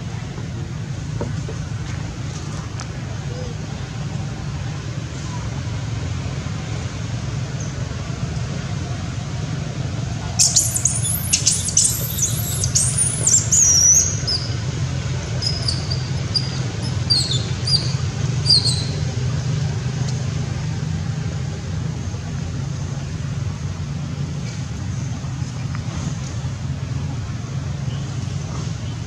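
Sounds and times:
monkey squealing: 15.4s - 18.9s.

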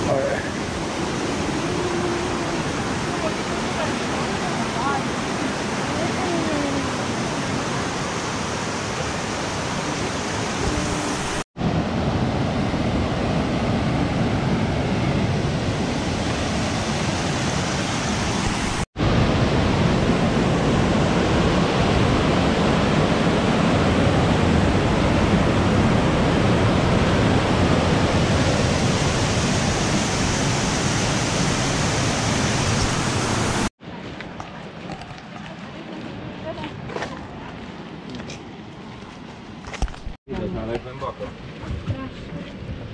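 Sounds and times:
waterfall rushing: 0.0s - 11.4s, 15.2s - 33.7s
quieter flowing water: 0.0s - 42.9s.

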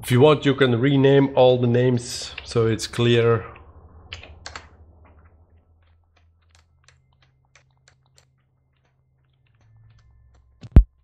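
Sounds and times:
keyboard keystrokes: 3.6s - 5.2s.

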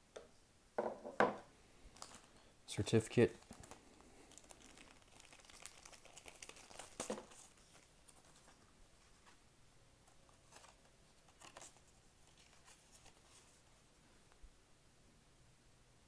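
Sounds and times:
faint paper rustles: 1.9s - 2.4s, 3.2s - 9.4s, 10.0s - 14.4s
plastic sleeve rustling: 1.9s - 9.4s, 10.1s - 14.3s.

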